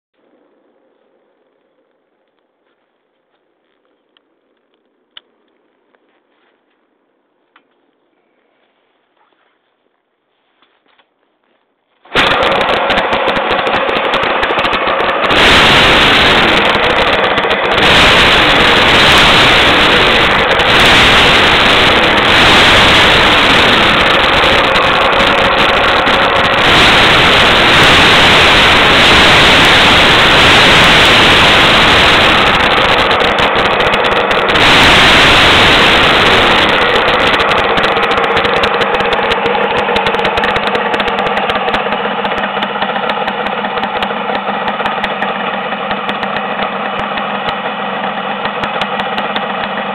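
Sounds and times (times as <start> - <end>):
two-stroke motorcycle engine revving: 12.0 - 49.9.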